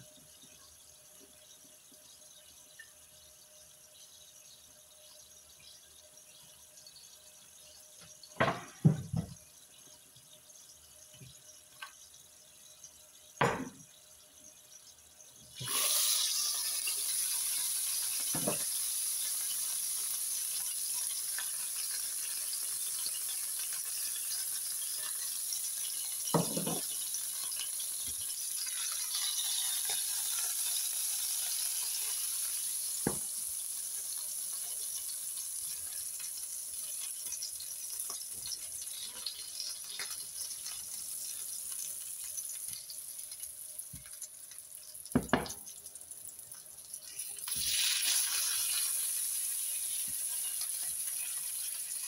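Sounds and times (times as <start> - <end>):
beef sizzling in a frying pan: 0.0 - 52.0
utensils knocking: 26.4 - 26.8.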